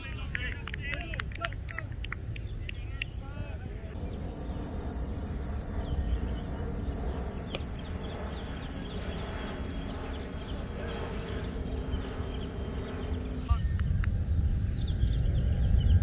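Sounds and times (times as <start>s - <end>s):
birds chirping: 0.0s - 16.0s
steady low rumble: 0.0s - 16.0s.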